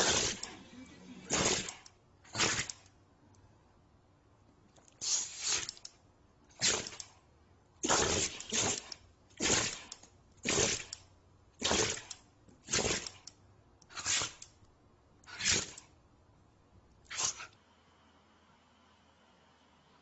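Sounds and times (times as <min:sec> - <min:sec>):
dog making breathy bursts: 0:05.0 - 0:05.7, 0:17.1 - 0:17.6.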